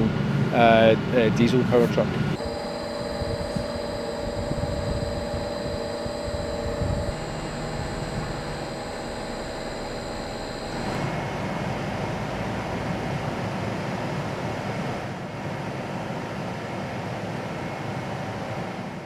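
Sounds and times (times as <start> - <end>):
faint steady hum: 1.3 - 13.6.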